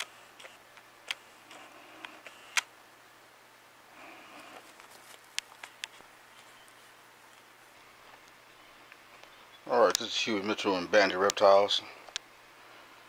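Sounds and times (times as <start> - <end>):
camera handling clicks: 2.0 - 2.7
faint rustling: 4.0 - 10.6.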